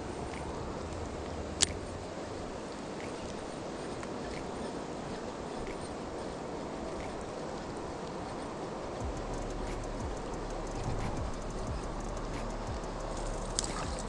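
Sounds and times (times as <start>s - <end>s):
sharp click: 9.2s - 14.0s.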